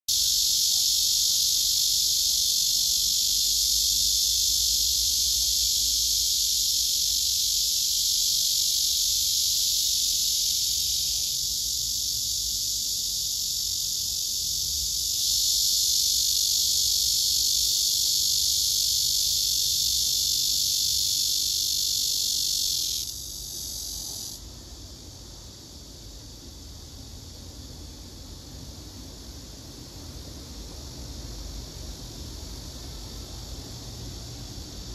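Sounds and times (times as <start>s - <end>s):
cicada buzzing: 0.1s - 24.4s.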